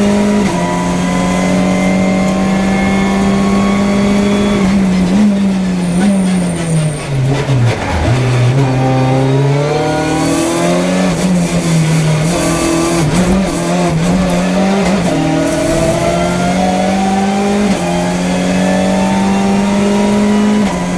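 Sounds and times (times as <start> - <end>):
race car engine revving: 0.0 - 20.9.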